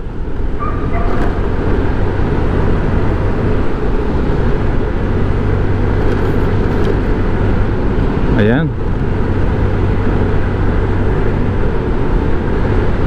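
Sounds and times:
motorcycle engine hum: 0:00.0 - 0:13.0
wind and road noise: 0:00.0 - 0:13.0.

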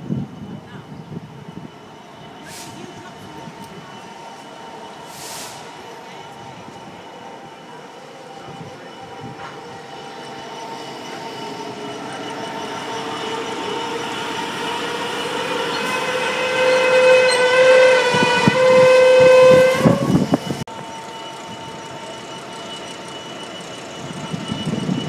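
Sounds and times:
train rumble: 0:00.0 - 0:25.0
train horn blasts: 0:15.2 - 0:20.4.

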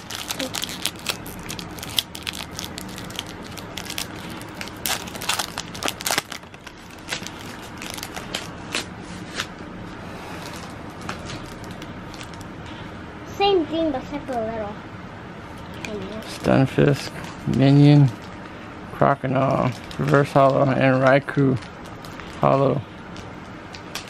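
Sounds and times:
foil wrapper crinkling: 0:00.0 - 0:09.4, 0:10.4 - 0:12.5, 0:19.5 - 0:24.0
cards rustling: 0:00.0 - 0:09.5.

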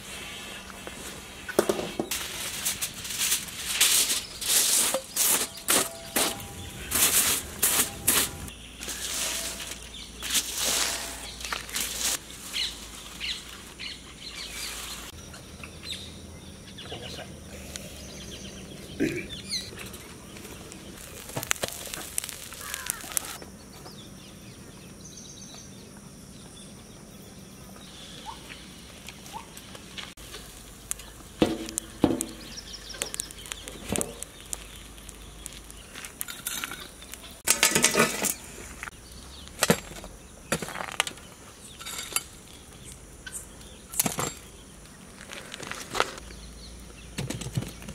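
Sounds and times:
aluminium foil crinkling: 0:02.1 - 0:13.9, 0:19.7 - 0:23.4, 0:30.0 - 0:38.8
metal plates and lid clinking: 0:04.9 - 0:12.1, 0:36.3 - 0:38.5.

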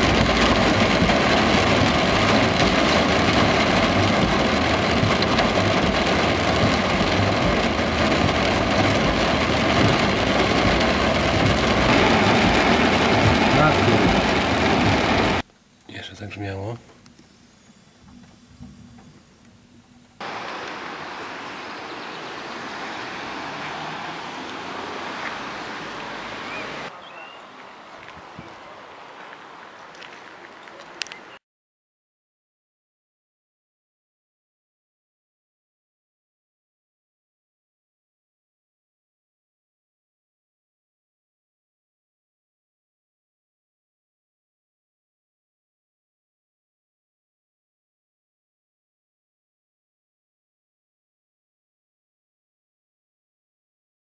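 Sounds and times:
heavy rain on car roof: 0:00.0 - 0:15.4, 0:20.2 - 0:26.9
low engine rumble: 0:00.0 - 0:15.4.

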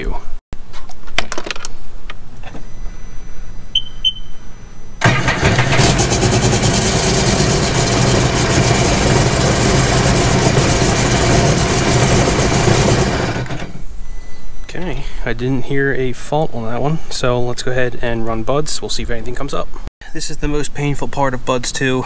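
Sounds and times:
short beeps: 0:02.4 - 0:05.0, 0:14.0 - 0:14.7
watercraft engine starting and running: 0:05.0 - 0:13.8.

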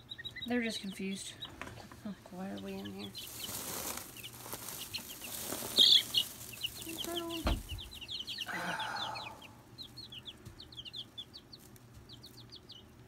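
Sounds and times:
chicks peeping: 0:00.0 - 0:13.0
low thump and rustle: 0:07.4 - 0:08.0.

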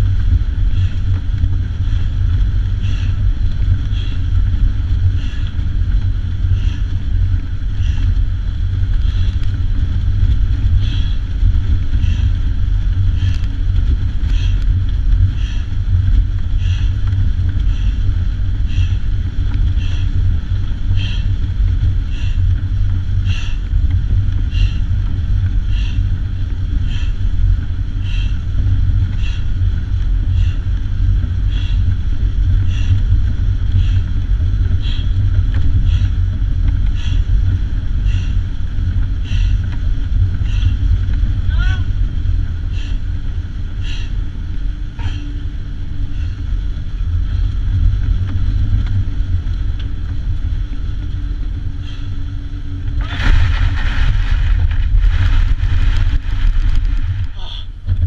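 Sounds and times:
air rush and low rumble: 0:00.0 - 0:58.0.

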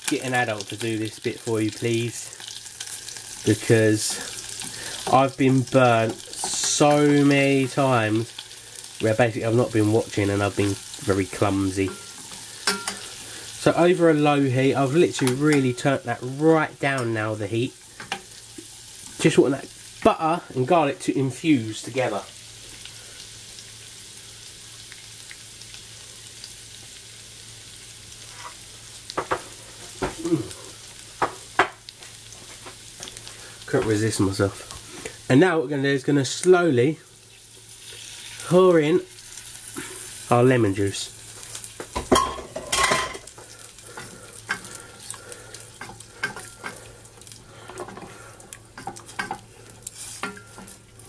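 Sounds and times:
butter and garlic sizzling: 0:00.0 - 0:51.0
wooden spoon knocking a pan: 0:31.2 - 0:31.8.

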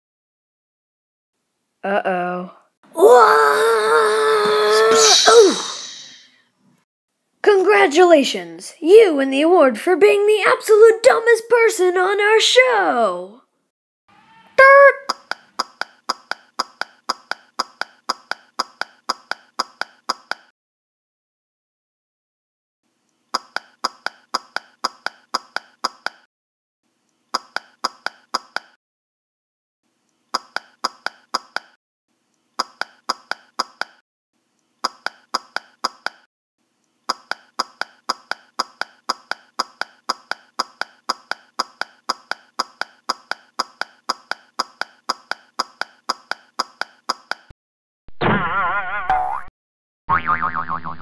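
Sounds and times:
pitched tapping sound effect: 0:15.0 - 0:20.5, 0:23.4 - 0:26.2, 0:27.4 - 0:28.8, 0:30.4 - 0:31.8, 0:32.6 - 0:34.0, 0:34.9 - 0:36.2, 0:37.1 - 0:47.5.

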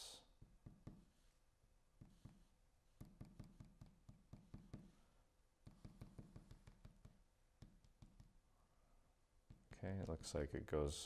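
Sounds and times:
glue bottle tip tapping: 0:03.0 - 0:04.9, 0:05.6 - 0:08.4.

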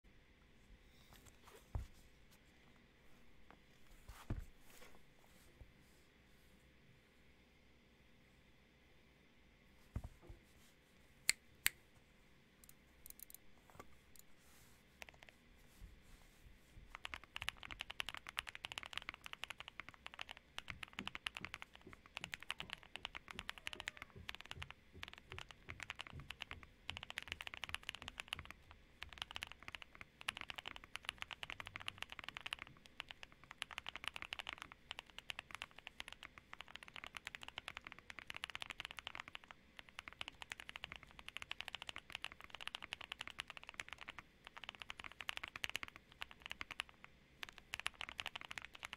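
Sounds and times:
mechanical keyboard typing: 0:16.9 - 0:48.9.

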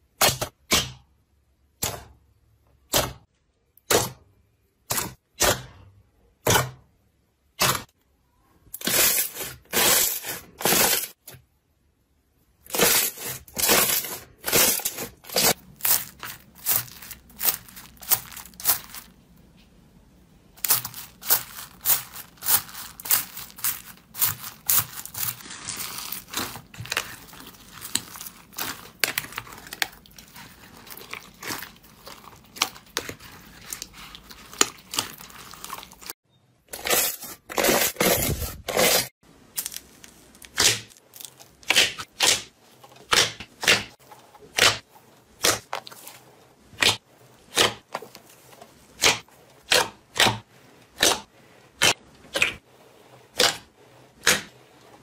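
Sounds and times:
foam-bead slime crackling: 0:12.7 - 0:19.2, 0:20.6 - 0:36.2, 0:39.4 - 0:42.1.

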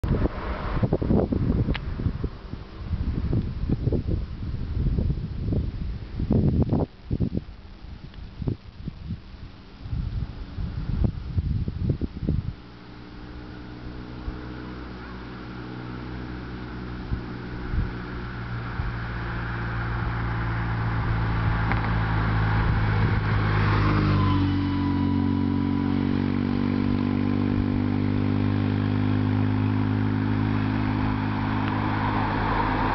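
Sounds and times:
car engine passing by: 0:00.0 - 0:03.3, 0:12.8 - 0:32.9
wind bumps on microphone: 0:00.0 - 0:12.7, 0:17.0 - 0:19.2, 0:19.9 - 0:24.3.

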